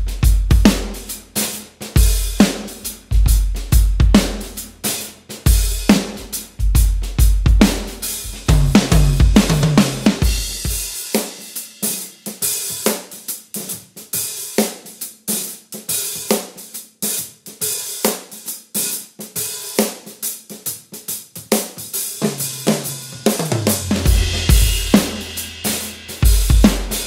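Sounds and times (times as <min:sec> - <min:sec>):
bass drum: 0:00.0 - 0:01.2, 0:02.0 - 0:04.9, 0:05.5 - 0:10.9, 0:22.5 - 0:27.0
cymbals and hi-hat: 0:00.0 - 0:27.0
snare drum strokes: 0:00.0 - 0:27.0.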